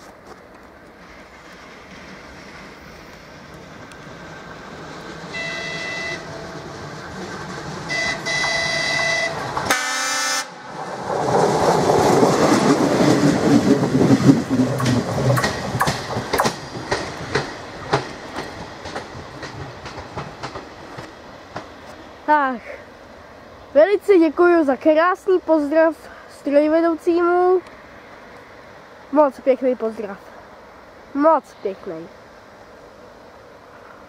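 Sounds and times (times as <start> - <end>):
wheels clicking over rail joints: 0.0 - 9.9, 10.7 - 22.3
railcar running noise: 0.0 - 34.0
train horn blasts: 5.3 - 6.4, 7.9 - 10.6.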